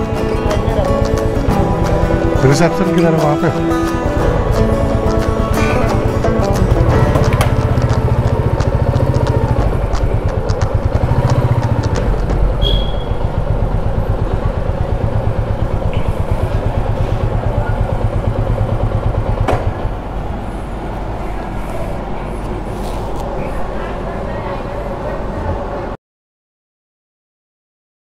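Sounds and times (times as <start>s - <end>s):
motorcycle engine running: 0.0s - 21.5s.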